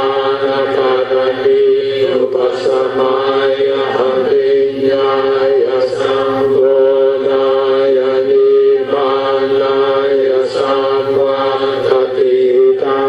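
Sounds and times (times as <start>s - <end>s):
voices chanting: 0.0s - 13.0s.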